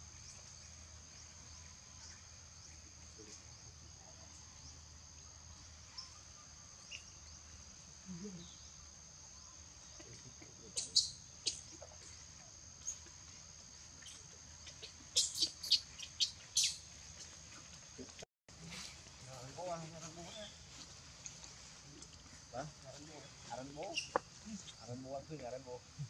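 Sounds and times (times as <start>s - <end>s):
insect chorus drone: 0.0s - 26.0s.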